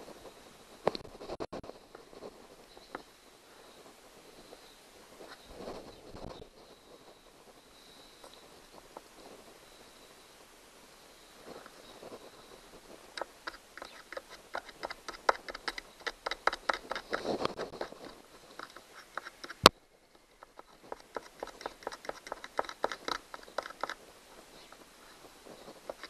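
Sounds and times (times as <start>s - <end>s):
screwdriver scraping metal: 13.2s - 19.7s, 20.3s - 24.0s.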